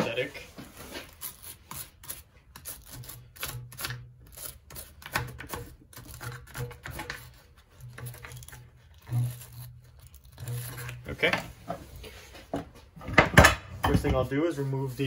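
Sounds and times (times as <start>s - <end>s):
brush scrubbing metal: 0.1s - 12.5s, 14.2s - 15.0s.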